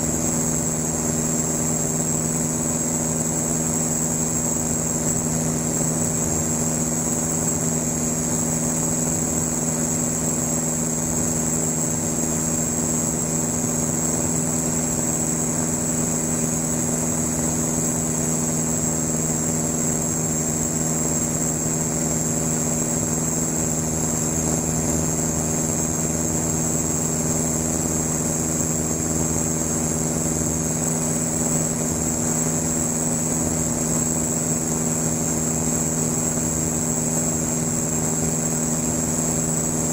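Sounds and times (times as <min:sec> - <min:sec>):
aircraft engine and propeller droning: 0:00.0 - 0:39.9
high-pitched whine: 0:00.0 - 0:39.9.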